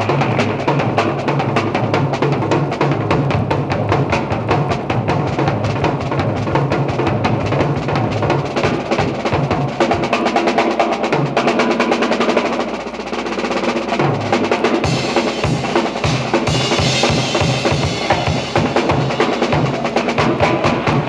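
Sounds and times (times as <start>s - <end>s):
fast snare drumming: 0.0s - 21.0s
bass drum: 13.9s - 21.0s.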